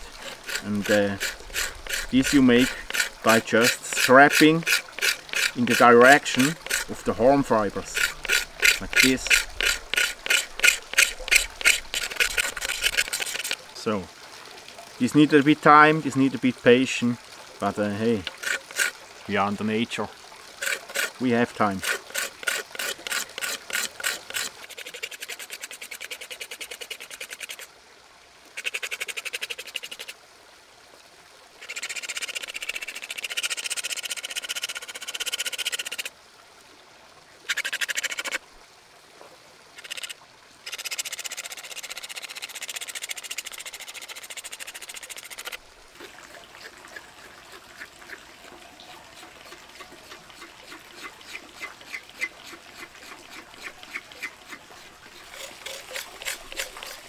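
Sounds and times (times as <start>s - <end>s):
knife blade scraping horn: 0.1s - 6.9s, 7.9s - 13.6s.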